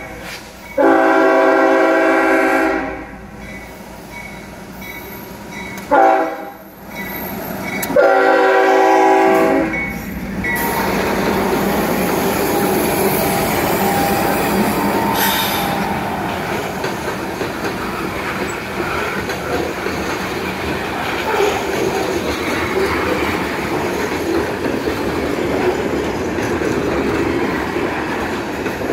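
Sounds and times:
locomotive horn blasts: 0.0s - 3.2s, 5.8s - 6.6s, 7.9s - 9.8s
train wheels rumbling on rail: 0.0s - 28.9s.

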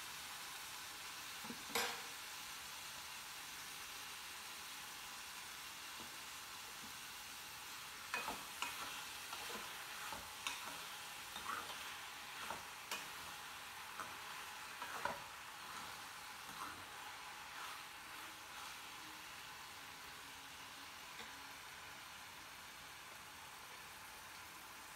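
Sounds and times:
vegetables sizzling in oil: 0.0s - 24.9s
ladle scraping and knocking pan: 8.2s - 13.3s, 13.9s - 18.8s.

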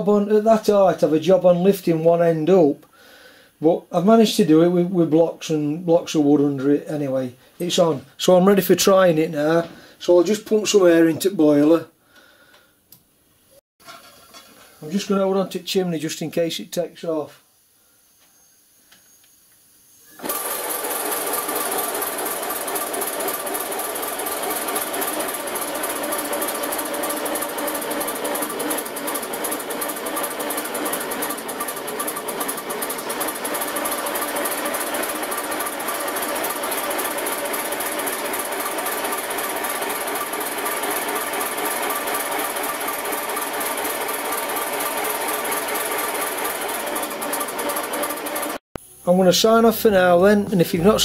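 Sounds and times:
locomotive wheels spinning on rollers: 20.2s - 48.6s.

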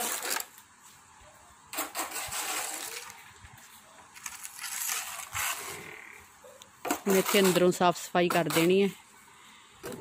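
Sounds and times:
hoe scraping cement floor: 0.0s - 0.6s, 1.7s - 6.2s, 6.9s - 9.0s.

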